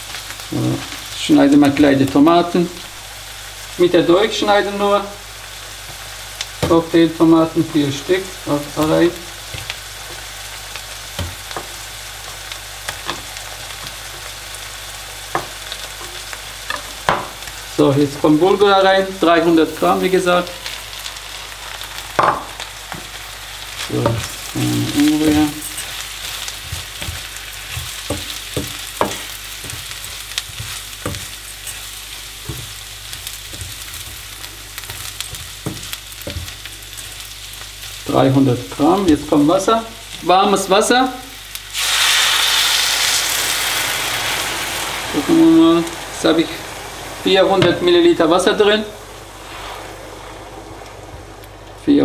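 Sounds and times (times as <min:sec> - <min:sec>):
vegetables sizzling in a frying pan: 0:00.0 - 0:52.0
spoon scraping a pan: 0:24.0 - 0:37.2.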